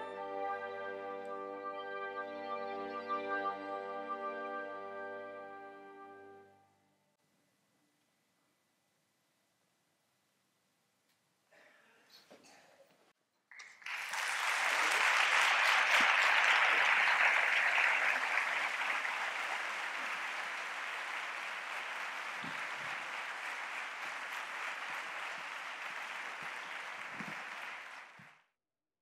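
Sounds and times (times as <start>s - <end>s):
audience applauding: 13.5s - 28.5s.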